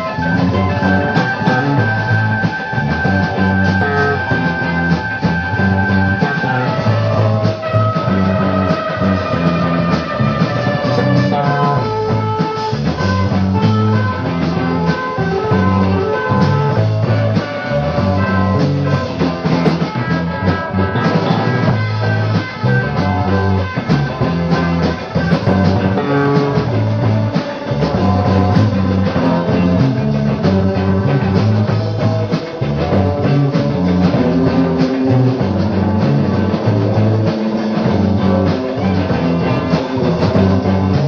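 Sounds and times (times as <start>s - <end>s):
rock band playing: 0.0s - 41.0s.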